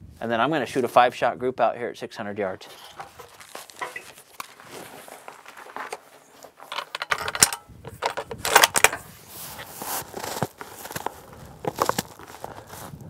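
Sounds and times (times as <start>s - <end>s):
faint handling sounds: 2.4s - 13.0s
cartridges clinking: 6.7s - 9.0s.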